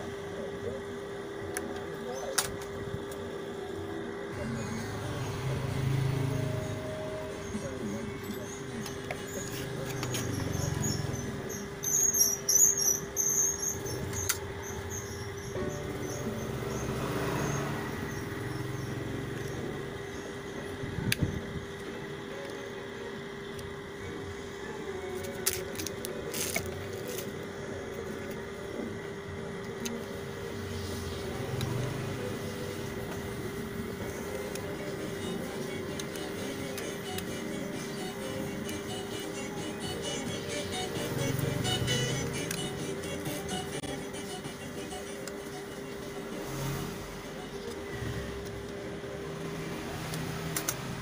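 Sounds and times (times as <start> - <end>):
steady hum: 0.0 - 51.0
high-pitched circuit board squeaks: 8.2 - 16.9.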